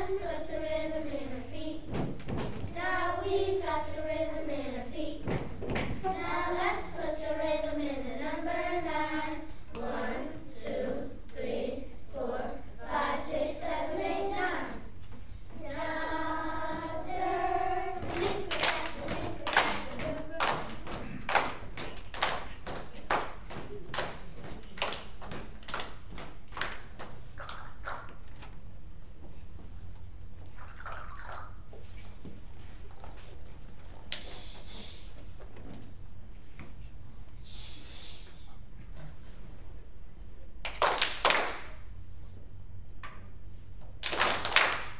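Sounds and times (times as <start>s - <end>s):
children's choir singing: 0.0s - 2.1s, 2.7s - 15.0s, 15.6s - 21.0s
short hiss: 34.1s - 35.2s, 37.4s - 38.6s.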